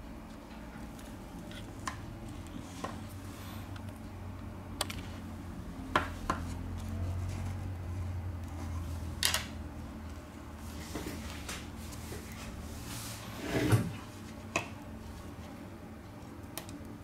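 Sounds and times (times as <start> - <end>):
small clicks and knocks of parts: 16.2 - 17.0.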